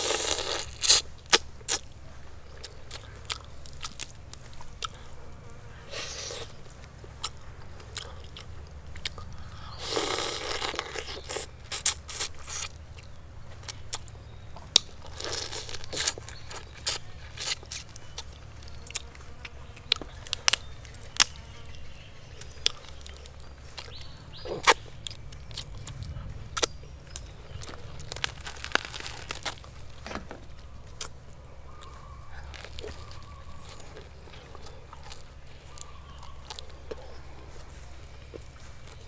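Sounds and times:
low background rumble: 0.6s - 39.0s.

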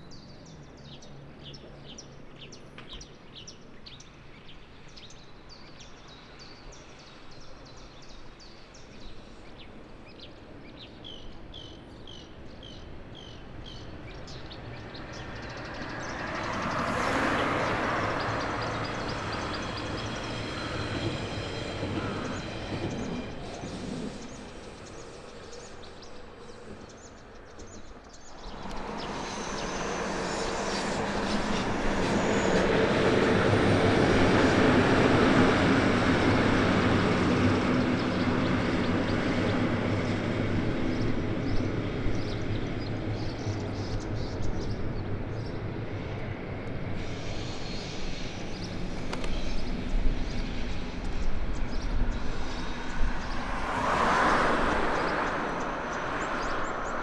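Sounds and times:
train passing over bridge: 3.2s - 57.0s
road vehicle approaching: 26.6s - 42.8s, 45.3s - 57.0s.

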